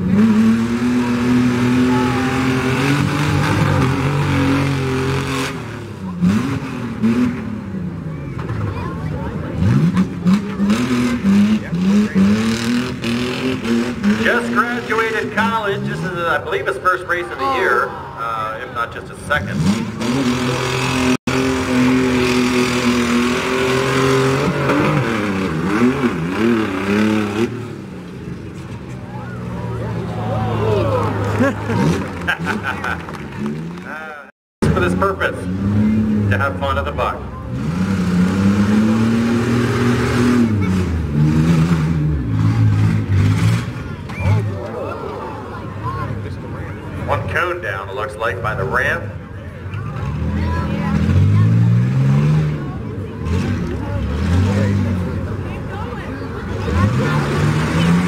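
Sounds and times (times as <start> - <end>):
truck engine revving: 0.0 - 58.0.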